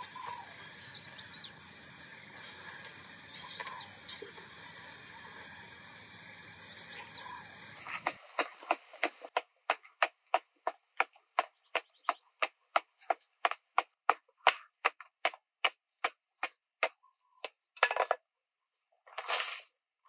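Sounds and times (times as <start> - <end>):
hoe chopping dry sandy ground: 7.6 - 18.1.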